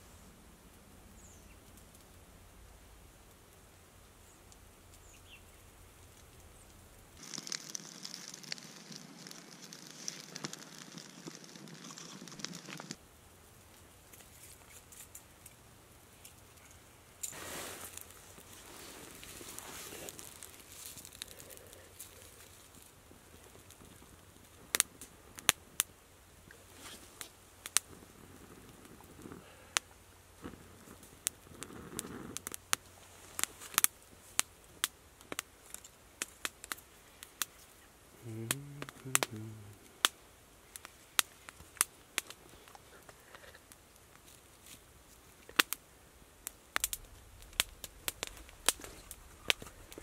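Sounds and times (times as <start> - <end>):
campfire crackling: 0.0 - 50.0
kindling snapping and popping: 4.4 - 13.0, 16.2 - 50.0
brief low voice: 38.2 - 39.8.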